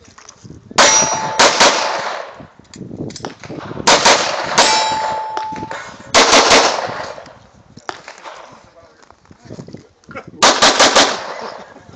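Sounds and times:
handgun shots with ringing echo: 0.8 - 2.4, 3.1 - 7.3.

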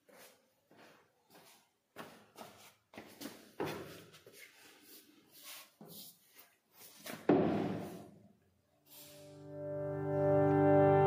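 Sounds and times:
loud thump: 7.3 - 8.1
guitar music: 9.4 - 11.0.

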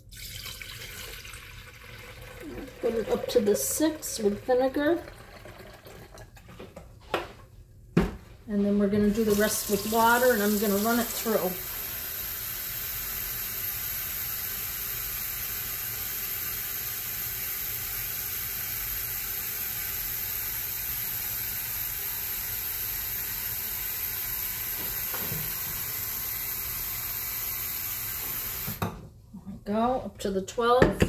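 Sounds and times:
faucet running into carafe: 0.0 - 6.5.

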